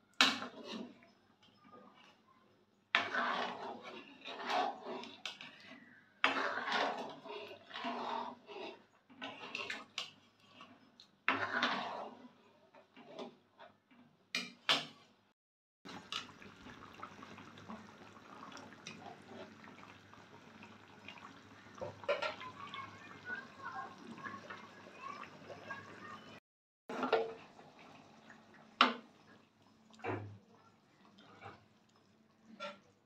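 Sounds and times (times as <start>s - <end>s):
metal spoon scraping a pot: 3.0s - 12.4s
curry bubbling and popping: 15.9s - 33.0s.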